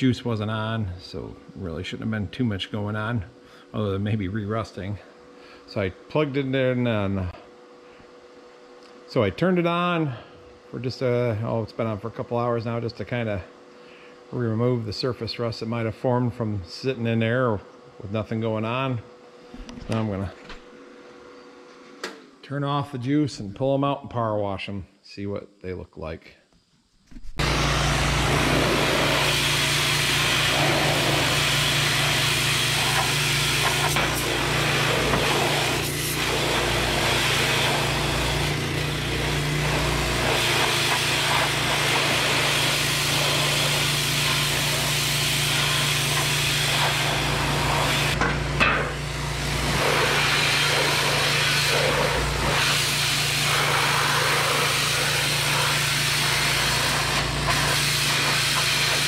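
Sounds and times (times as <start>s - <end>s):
pressure washer humming: 27.2s - 59.0s
water jet hissing on steel: 28.2s - 48.2s, 49.5s - 59.0s.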